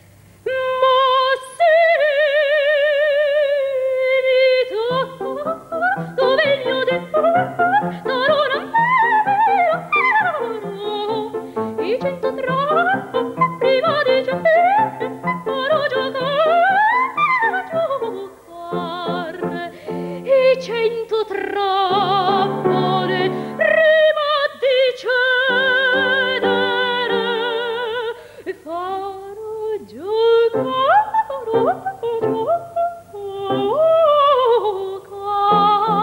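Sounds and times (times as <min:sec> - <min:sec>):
soprano singing: 0:00.4 - 0:36.0
piano accompaniment: 0:04.9 - 0:21.0, 0:21.8 - 0:24.2, 0:25.4 - 0:28.0, 0:30.5 - 0:32.8.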